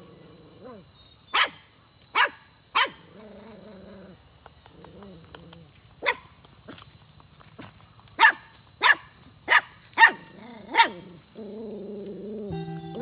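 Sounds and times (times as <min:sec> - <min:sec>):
puppy barking: 0:01.4 - 0:01.6, 0:02.2 - 0:03.0, 0:08.2 - 0:11.0.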